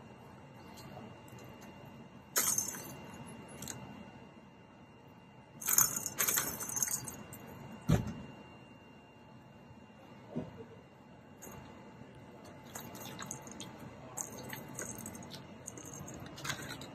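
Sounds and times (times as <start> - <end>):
balls rattling in plastic track: 5.6 - 7.1, 12.6 - 16.9.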